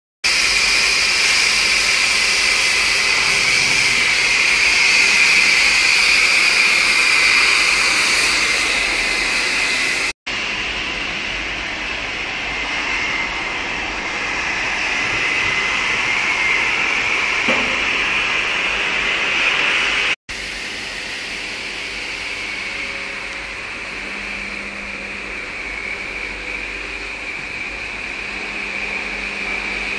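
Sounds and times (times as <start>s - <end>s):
cutting torch hissing: 0.3s - 10.2s.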